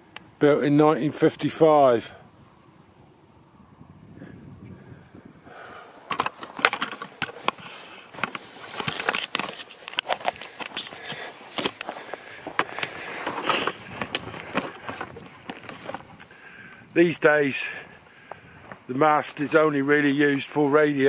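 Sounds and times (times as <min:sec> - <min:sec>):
camera handling noise: 0:06.0 - 0:16.9.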